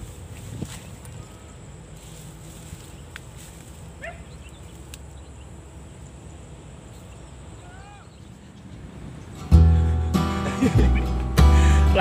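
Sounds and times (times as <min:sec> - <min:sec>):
distant animal cries: 0:04.0 - 0:04.4, 0:07.6 - 0:08.3.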